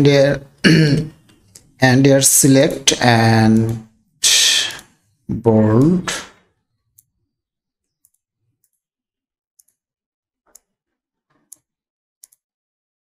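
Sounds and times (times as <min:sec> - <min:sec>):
computer mouse clicking: 0:07.8 - 0:08.8, 0:09.6 - 0:09.8, 0:11.3 - 0:12.4.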